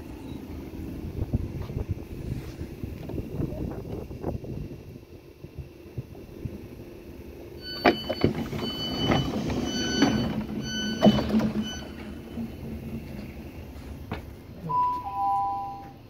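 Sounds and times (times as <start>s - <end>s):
sliding doors clunking: 6.0s - 16.0s
door warning beeps: 7.6s - 12.6s, 14.6s - 16.0s
announcement chime tone: 14.6s - 16.0s.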